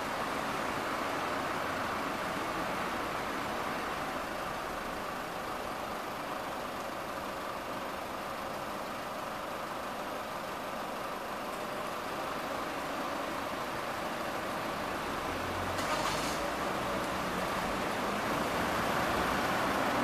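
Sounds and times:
car engine idling: 0.0 - 15.4
street noise: 0.0 - 20.0.

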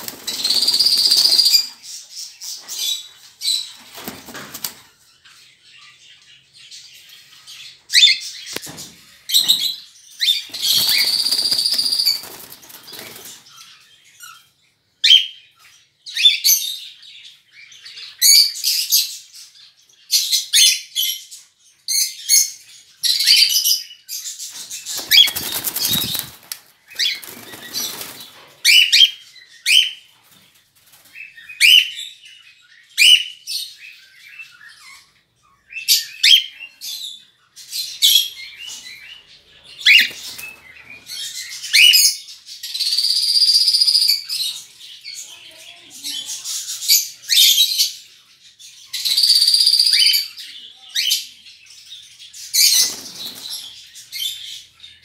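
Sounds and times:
wings flapping: 0.0 - 1.7, 3.8 - 4.9, 10.4 - 13.5, 24.5 - 28.5, 52.7 - 53.7
bird chirps and calls: 0.0 - 4.2, 4.9 - 30.1, 31.2 - 55.0.

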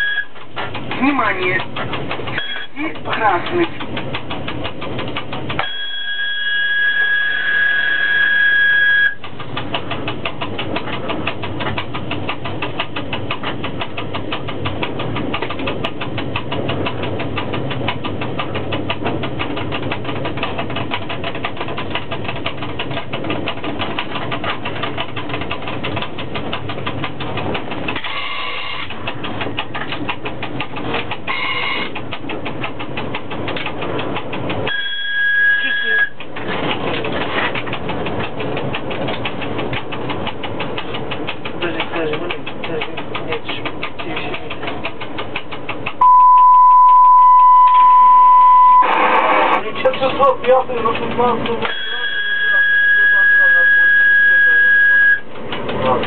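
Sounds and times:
two-tone warning whistle: 0.0 - 0.4, 2.4 - 2.8, 5.6 - 9.2, 34.7 - 36.2, 46.0 - 49.0, 51.7 - 55.3
rapid even ticking: 0.0 - 6.2, 9.1 - 48.6, 49.6 - 56.0
train running noise: 0.0 - 56.0.

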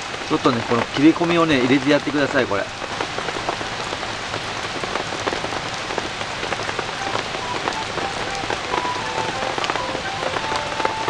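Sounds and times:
steady rain patter: 0.0 - 11.0.

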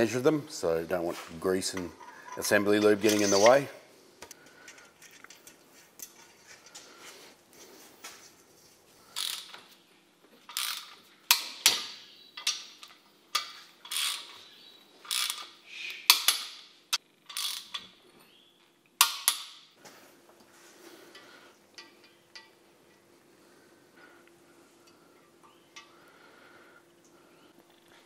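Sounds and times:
torque wrench ratchet strokes: 9.2 - 9.6, 10.5 - 11.4, 13.8 - 14.4, 15.0 - 15.5, 17.2 - 17.8.

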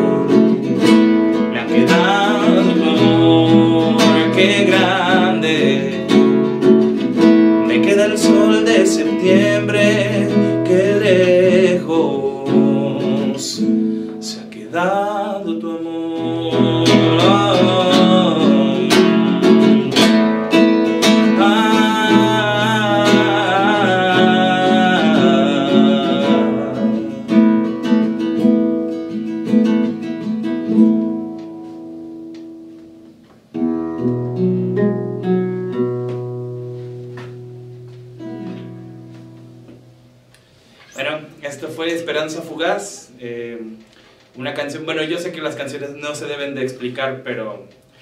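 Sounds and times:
man singing: 0.0 - 6.6, 7.6 - 27.8
acoustic guitar: 0.0 - 48.0.

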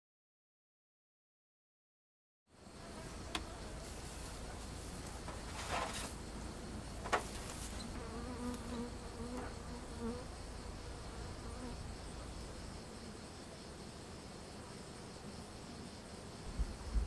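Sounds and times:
honeybees buzzing: 2.6 - 17.0.

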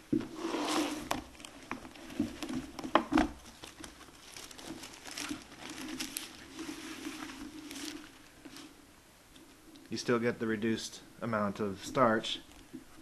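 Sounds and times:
crinkling and rustling: 0.0 - 9.8
faint steady hum: 0.0 - 13.0.

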